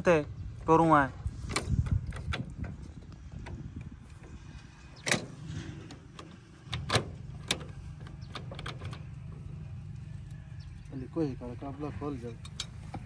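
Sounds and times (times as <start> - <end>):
steady low rumble: 0.0 - 13.0
gear levers clicking and clunking: 1.4 - 9.5.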